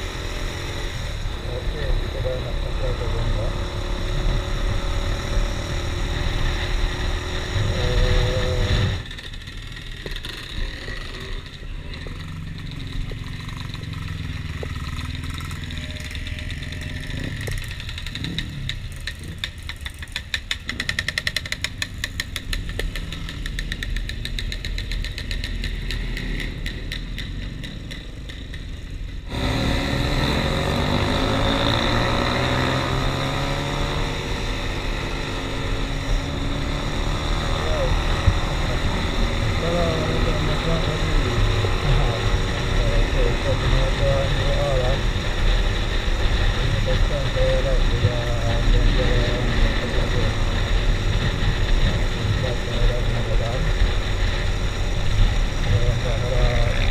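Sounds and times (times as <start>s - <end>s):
engine rev: 0.0s - 56.9s
motorcycle riding: 0.0s - 56.9s
motorcycle engine idling: 9.0s - 29.3s.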